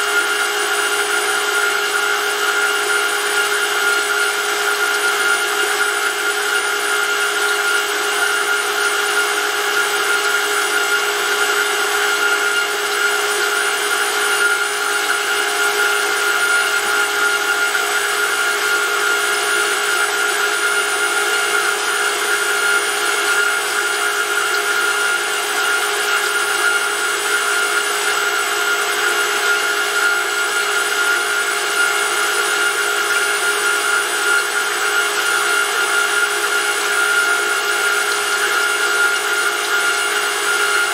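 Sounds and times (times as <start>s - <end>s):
electric motor whine: 0.0s - 40.9s.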